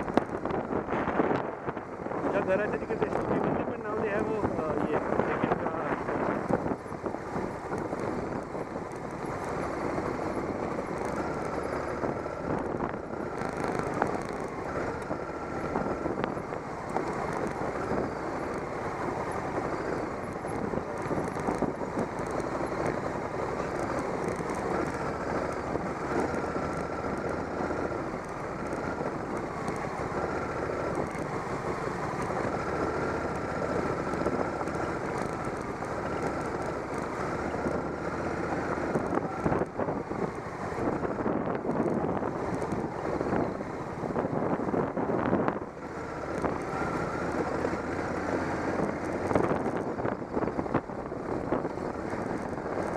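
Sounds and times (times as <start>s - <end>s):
motorcycle engine running: 0.0s - 52.9s.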